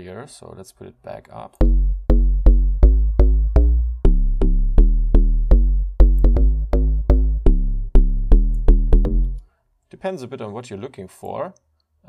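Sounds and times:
punchy synth bass notes: 1.6 - 9.4.

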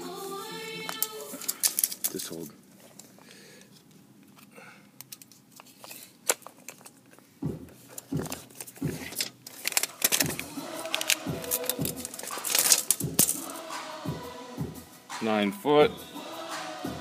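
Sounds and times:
tape measure and phone handling: 0.9 - 3.2, 7.8 - 13.5
music with thumping beat: 7.4 - 9.2, 10.2 - 17.0.

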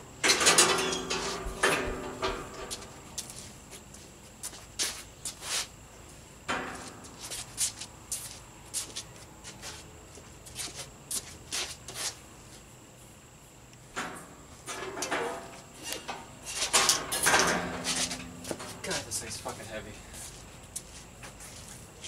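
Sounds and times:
shoe scuffs on concrete: 2.7 - 5.8, 6.8 - 12.7, 20.1 - 22.0.

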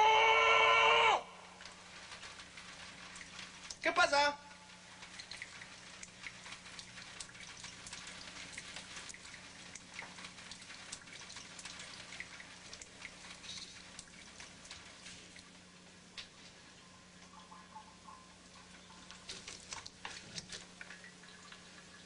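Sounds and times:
low steady hum: 0.0 - 22.0
shower water spraying: 1.5 - 15.8.

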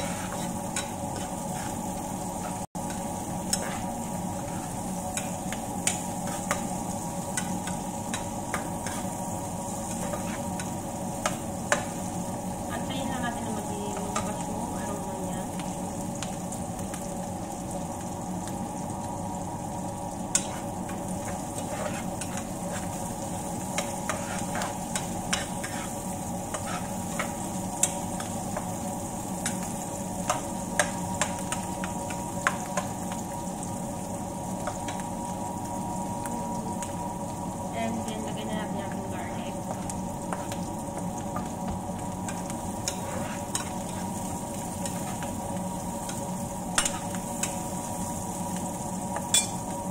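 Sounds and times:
metal spoon scraping a pan: 0.0 - 6.7, 7.3 - 9.2, 9.8 - 12.0, 20.3 - 23.0, 23.8 - 28.4, 42.3 - 44.2
onions sizzling in oil: 0.0 - 49.9.

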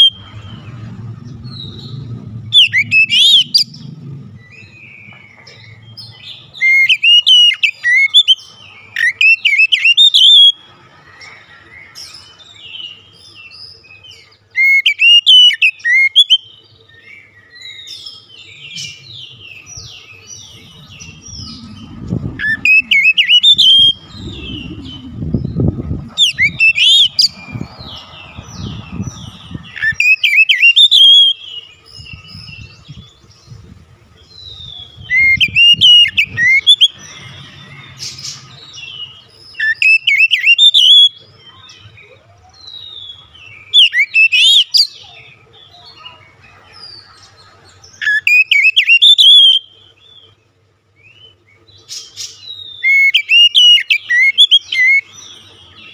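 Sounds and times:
bird singing whistled phrases: 6.2 - 8.4, 19.7 - 27.4, 29.8 - 31.6, 34.4 - 37.1, 39.0 - 41.2, 42.7 - 45.1, 48.0 - 49.8, 52.4 - 55.9.

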